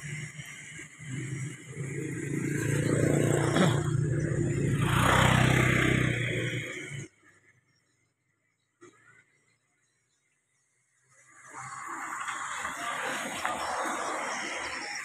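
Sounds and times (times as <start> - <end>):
vehicle engine passing by: 0.0 - 7.2.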